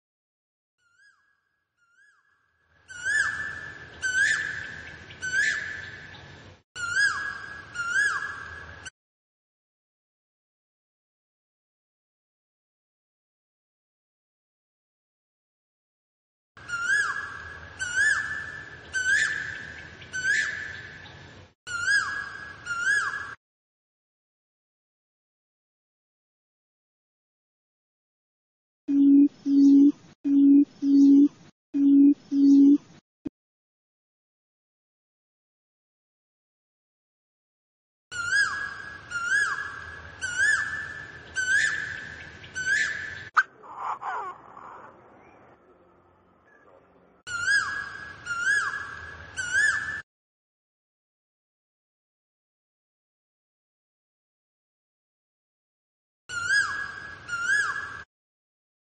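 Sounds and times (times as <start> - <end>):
bird whistled call: 6.8 - 8.4, 21.7 - 23.4, 38.2 - 43.5, 47.3 - 50.0, 56.3 - 58.0
koel whistled calls: 47.3 - 50.0.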